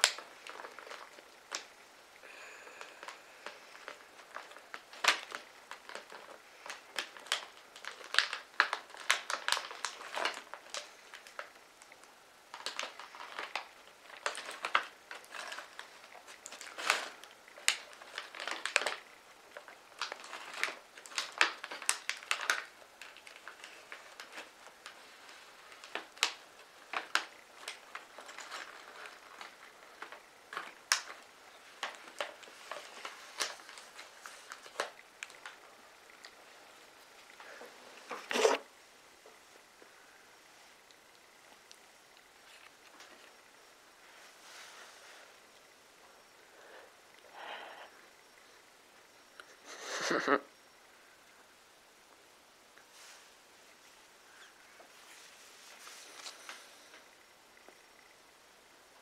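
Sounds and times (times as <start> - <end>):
plastic chip bag crinkling: 0.0 - 38.7, 40.8 - 43.6.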